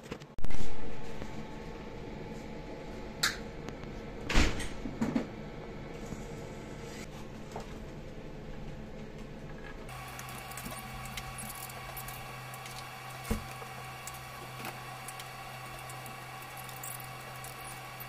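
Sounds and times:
gas torch burning: 0:09.9 - 0:18.0.

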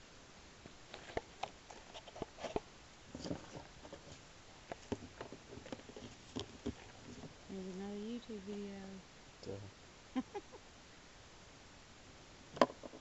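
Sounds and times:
handling noise: 0:00.6 - 0:07.5.

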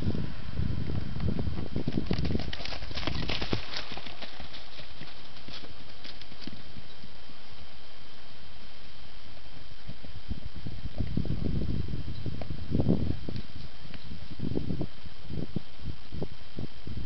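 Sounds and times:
horse hoofbeats on dirt: 0:01.6 - 0:06.8.

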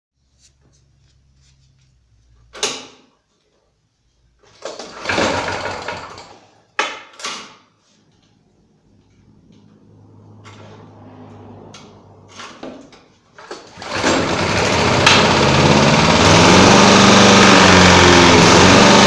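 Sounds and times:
lawn mower pull-start clunks: 0:04.4 - 0:06.4, 0:13.4 - 0:19.0
lawn mower engine cranking: 0:04.4 - 0:06.5, 0:12.3 - 0:19.0.

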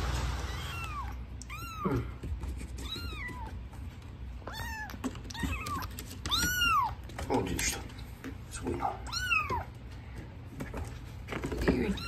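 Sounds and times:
kitten meowing: 0:00.4 - 0:02.1, 0:04.4 - 0:07.1, 0:09.0 - 0:09.7.

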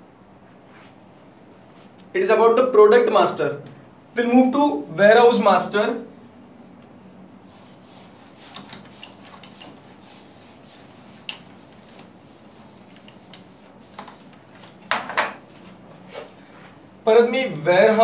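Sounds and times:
whiteboard being wiped: 0:00.6 - 0:02.0, 0:07.4 - 0:14.8.

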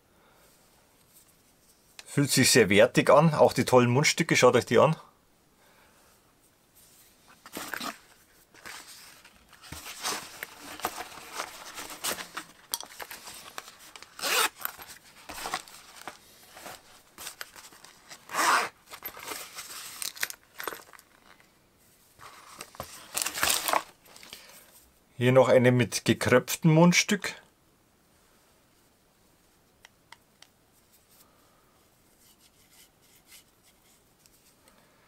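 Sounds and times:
packaging rustling and scraping: 0:06.9 - 0:21.5, 0:22.2 - 0:24.4.

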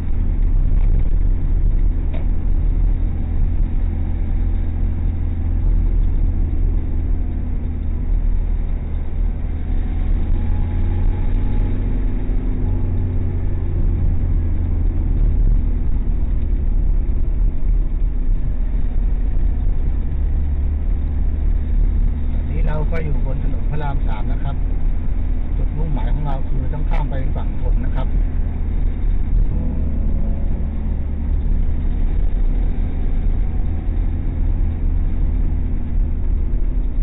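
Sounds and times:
car engine rumble: 0:00.0 - 0:37.0.

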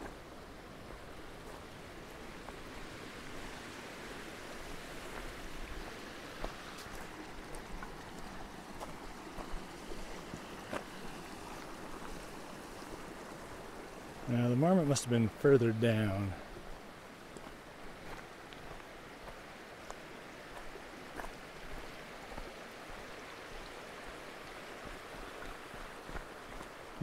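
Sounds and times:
creek trickling: 0:00.0 - 0:27.0
footsteps on gravel: 0:06.3 - 0:12.2, 0:17.3 - 0:21.8.

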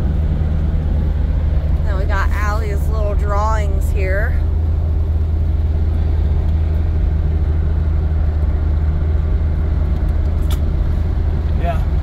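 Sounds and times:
car engine and exhaust droning: 0:00.0 - 0:12.0.

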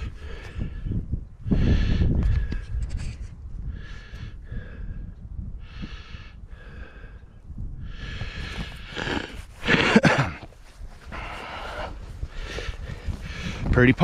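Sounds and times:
man breathing hard: 0:00.0 - 0:02.8, 0:03.6 - 0:13.7
microphone handling rumble: 0:00.0 - 0:03.8, 0:07.4 - 0:14.0
wind on microphone: 0:00.0 - 0:14.0.

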